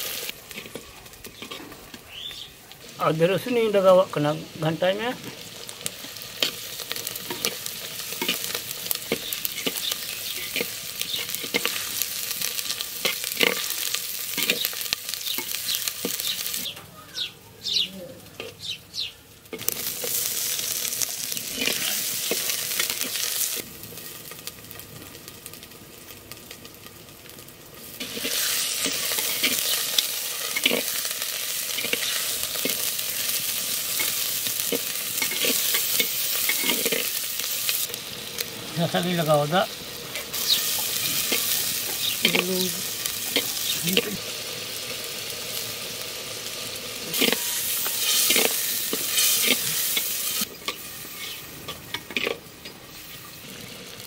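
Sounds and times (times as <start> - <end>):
food sizzling in oil: 0.0 - 54.0
steel spoon scraping a pot: 47.1 - 52.4.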